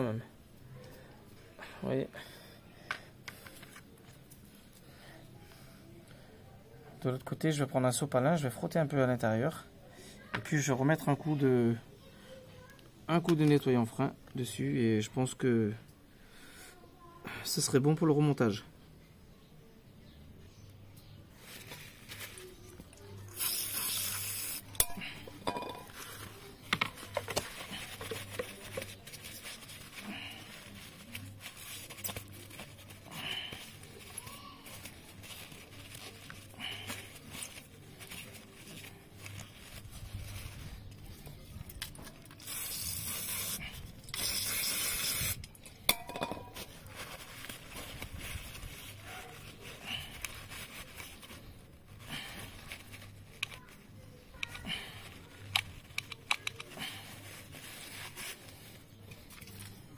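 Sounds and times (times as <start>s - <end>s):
aerosol spray hissing: 23.4s - 24.6s, 44.2s - 45.4s
small clicks and handling: 55.4s - 56.8s.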